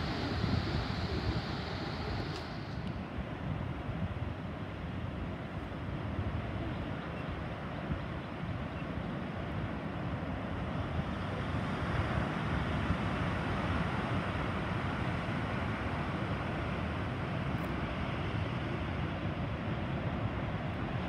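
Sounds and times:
wind on microphone: 0:00.0 - 0:07.1
distant heavy surf: 0:00.0 - 0:21.0.

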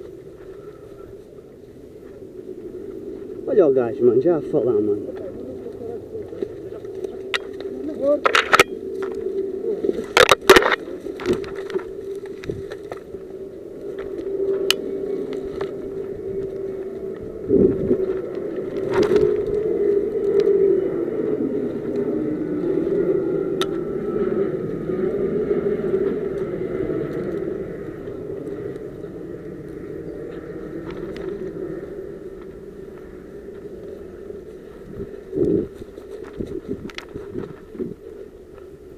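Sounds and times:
steady low drone: 0:00.0 - 0:38.9
twigs and brush snapping: 0:05.1 - 0:22.1, 0:23.5 - 0:23.9, 0:25.9 - 0:38.7.

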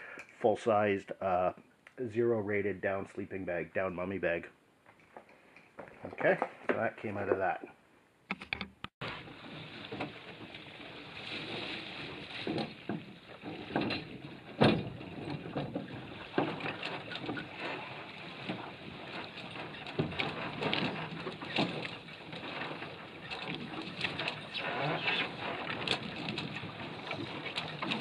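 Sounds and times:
boat knocks and bumps: 0:09.0 - 0:28.0
water lapping against hull: 0:09.0 - 0:28.0.

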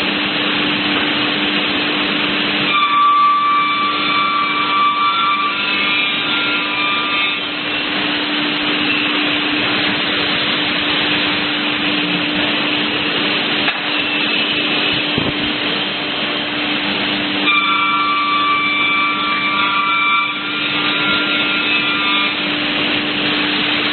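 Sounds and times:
machine hum: 0:00.0 - 0:23.9
saw cutting wood: 0:02.6 - 0:11.2, 0:17.4 - 0:23.9.

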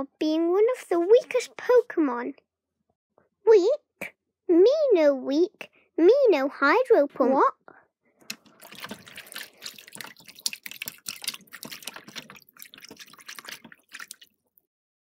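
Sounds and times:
water splashing and dripping: 0:08.2 - 0:14.6.

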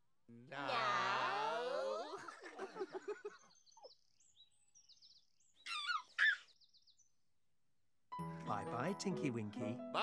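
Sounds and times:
birds chirping: 0:02.4 - 0:07.3.

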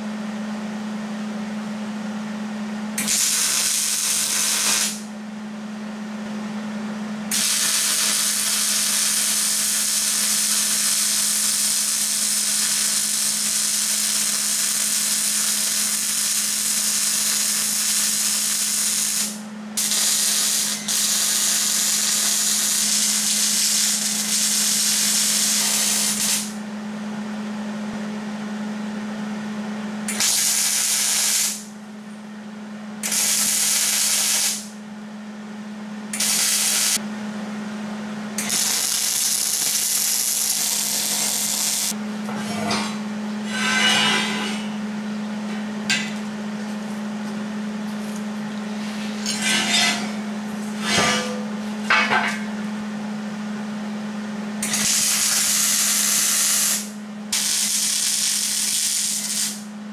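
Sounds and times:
arc welding crackling: 0:03.0 - 0:05.1, 0:07.3 - 0:26.6, 0:30.1 - 0:31.7, 0:33.0 - 0:34.7, 0:36.2 - 0:37.0, 0:38.4 - 0:42.0, 0:54.6 - 0:59.7
steady low hum: 0:34.0 - 0:54.7.

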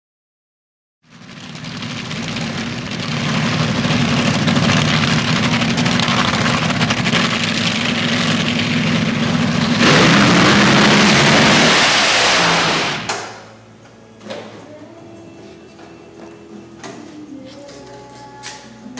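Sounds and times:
truck engine revving: 0:01.1 - 0:13.8.

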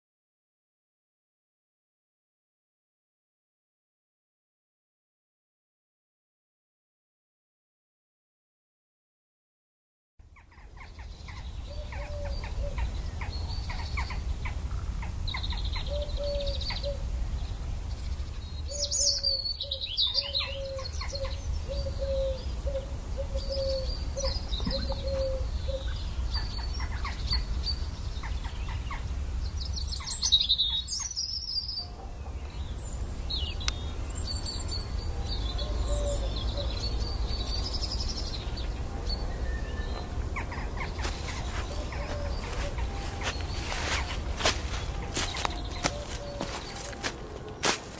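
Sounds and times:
bird low evenly spaced notes: 0:10.2 - 0:47.9
birds chirping and trilling: 0:10.2 - 0:47.9.

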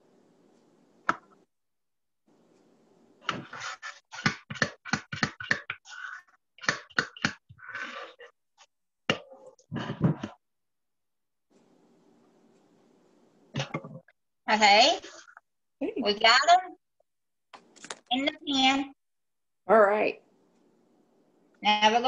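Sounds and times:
scooping scrapes: 0:03.2 - 0:08.3.

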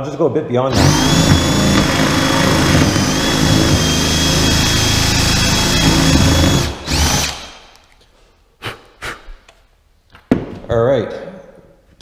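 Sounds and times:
cordless drill whining: 0:00.7 - 0:07.9.

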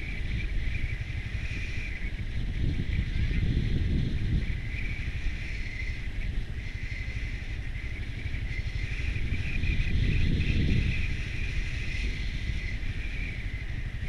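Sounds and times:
constant high hiss: 0:00.0 - 0:14.0
vehicle engine and road rumble: 0:00.0 - 0:14.0.

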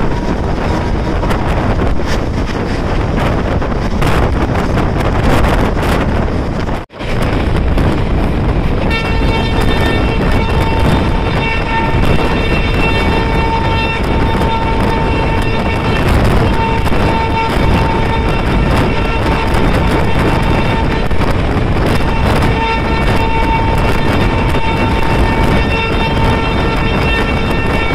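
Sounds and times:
moving train running noise: 0:00.0 - 0:27.9
rushing wind: 0:00.0 - 0:27.9
train horn blast: 0:06.9 - 0:27.9.

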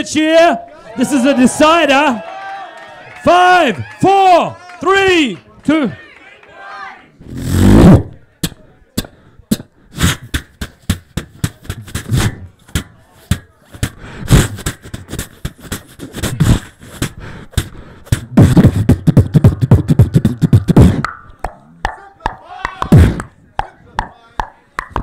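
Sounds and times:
beatboxing into microphone: 0:07.2 - 0:25.0.

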